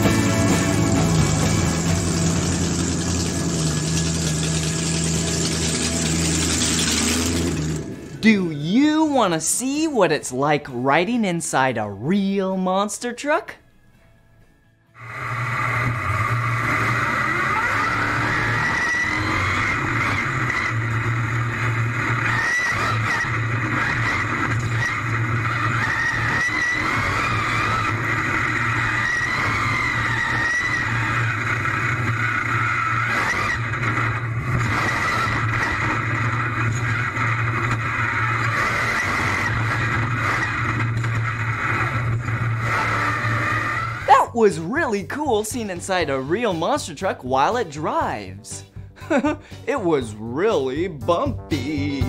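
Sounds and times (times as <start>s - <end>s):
truck engine running hard: 0.0s - 8.5s, 15.0s - 44.3s, 48.9s - 50.0s.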